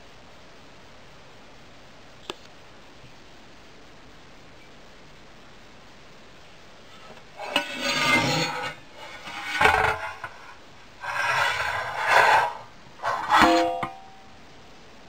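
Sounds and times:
metal tray rubbing and scraping: 0:07.0 - 0:14.2.

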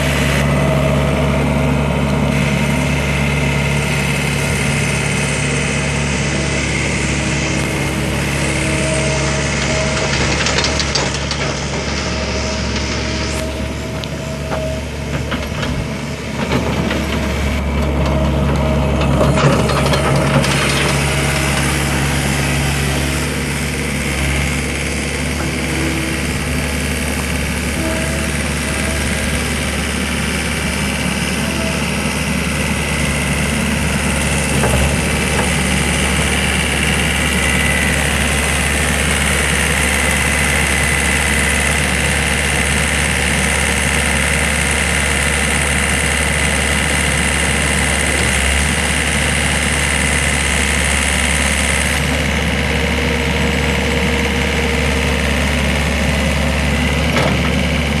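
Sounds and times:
diesel engine running: 0:00.0 - 0:58.0
high whine: 0:20.6 - 0:42.2.

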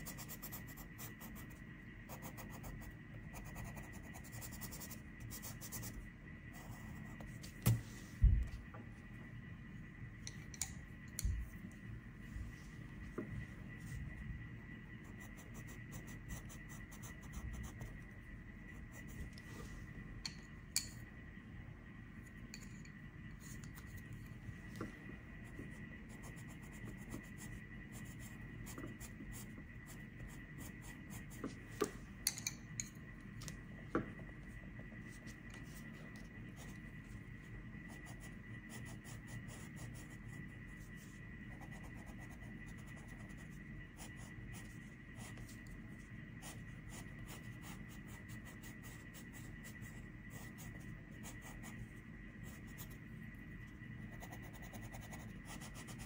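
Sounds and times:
pencil scratching on paper: 0:00.0 - 0:06.0, 0:37.9 - 0:45.6, 0:46.4 - 0:51.8, 0:54.1 - 0:56.0.

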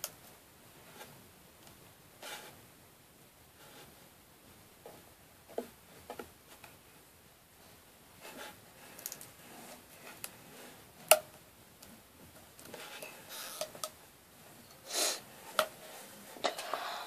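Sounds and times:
short hiss: 0:14.8 - 0:15.2.

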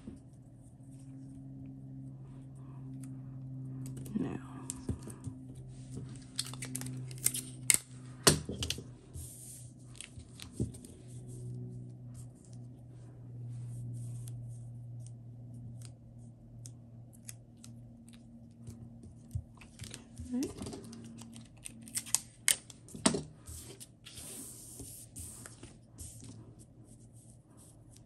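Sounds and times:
low steady hum: 0:00.0 - 0:28.0
adhesive tape snapping and tearing: 0:06.2 - 0:07.9, 0:21.1 - 0:22.8.

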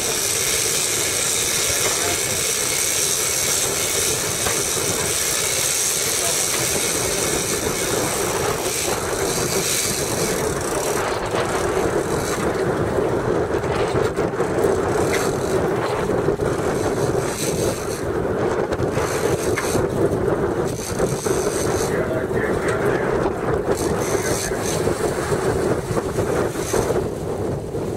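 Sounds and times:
boat engine humming: 0:00.0 - 0:27.9.

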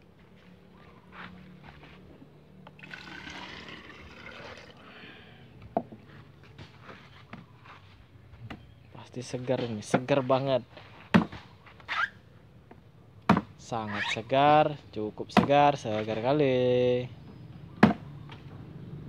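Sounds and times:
liquid pouring into plastic bottle: 0:02.8 - 0:05.0.

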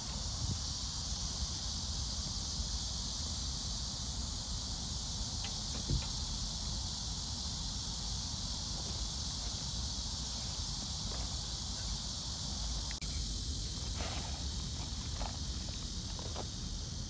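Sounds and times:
insect chorus: 0:00.0 - 0:17.0
wind rumble on microphone: 0:00.2 - 0:01.6.

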